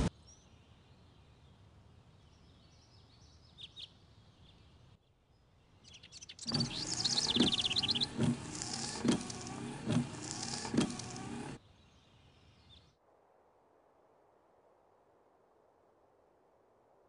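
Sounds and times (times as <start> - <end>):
birds chirping: 2.4 - 12.9
wiper knocking: 6.5 - 11.2
windshield wipers on wet glass: 6.5 - 11.6.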